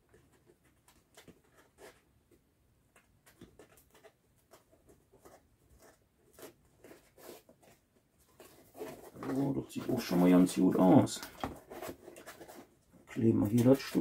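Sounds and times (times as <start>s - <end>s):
helmet rustling and clicking: 0.0s - 14.0s.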